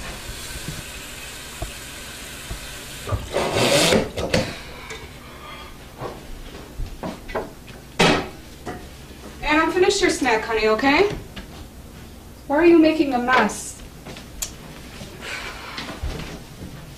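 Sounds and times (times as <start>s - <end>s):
water running: 0.0s - 5.2s.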